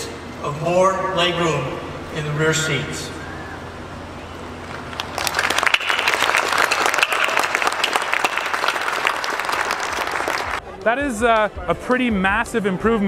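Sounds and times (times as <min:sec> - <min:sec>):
audience clapping: 0:04.6 - 0:11.0.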